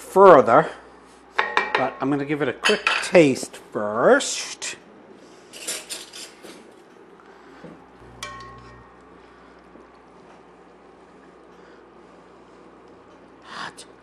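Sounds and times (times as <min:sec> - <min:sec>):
spoon clinking on pot: 0:08.1 - 0:09.0.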